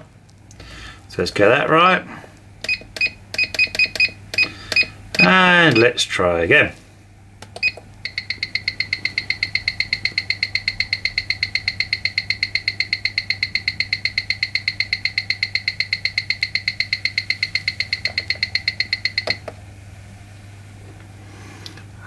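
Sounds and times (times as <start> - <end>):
watch ticking through speaker: 2.6 - 5.9, 7.6 - 19.4.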